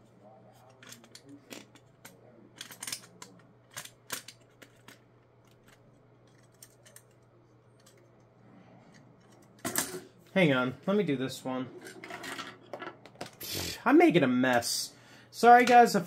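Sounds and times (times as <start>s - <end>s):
plastic toy parts clicking: 0.8s - 7.2s.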